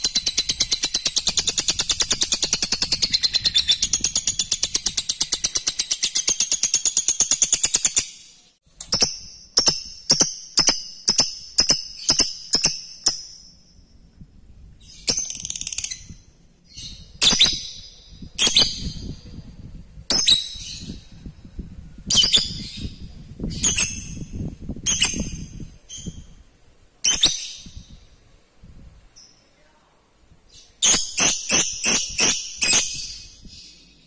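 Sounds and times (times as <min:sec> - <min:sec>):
bird chattering trill: 0:00.0 - 0:08.2, 0:08.9 - 0:13.5, 0:30.9 - 0:33.4
bird giving shrill calls: 0:30.6 - 0:33.8.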